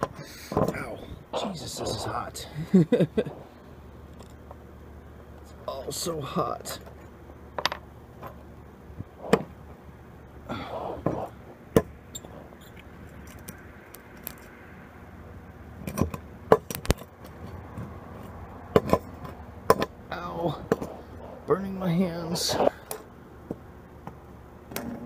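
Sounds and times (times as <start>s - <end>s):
faint low hum: 0.0s - 25.0s.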